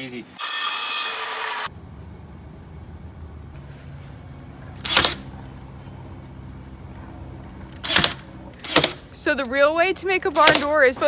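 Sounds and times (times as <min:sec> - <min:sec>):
nail gun firing: 0:04.8 - 0:05.2, 0:07.8 - 0:09.0, 0:10.4 - 0:10.8.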